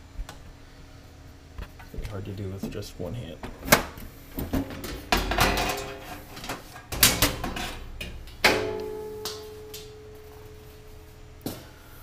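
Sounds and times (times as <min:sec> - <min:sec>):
sheet metal cover scraping: 0:05.0 - 0:07.9.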